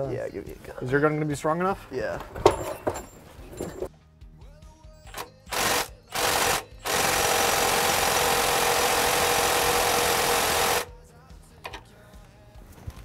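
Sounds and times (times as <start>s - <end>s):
impact wrench whining: 5.1s - 10.9s.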